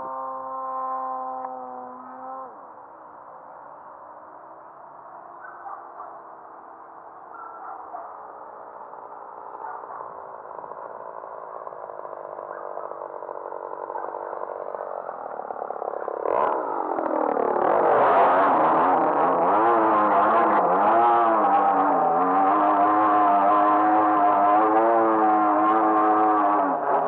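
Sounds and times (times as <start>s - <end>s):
model plane motor and propeller: 0.0s - 2.8s, 8.4s - 27.0s.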